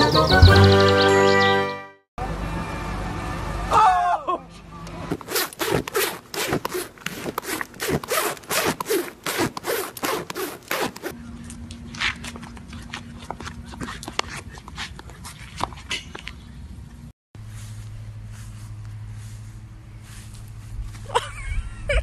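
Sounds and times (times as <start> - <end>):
rubbing against microphone: 5.1 - 11.2, 12.0 - 16.2
steady low hum: 11.1 - 22.0.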